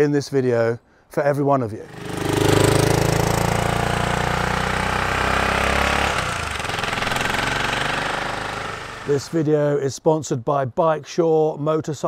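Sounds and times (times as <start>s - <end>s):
motorcycle engine riding away: 1.8s - 9.4s.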